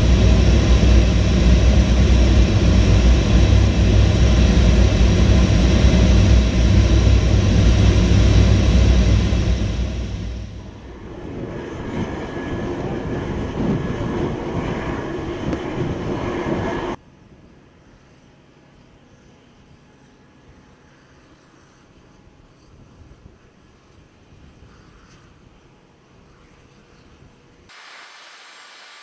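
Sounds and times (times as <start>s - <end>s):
deep rumble: 0.0s - 17.0s
wind noise: 0.0s - 17.0s
turbine whine with high tone: 0.0s - 24.6s, 25.4s - 29.0s
aircraft engine in flight: 0.0s - 29.0s.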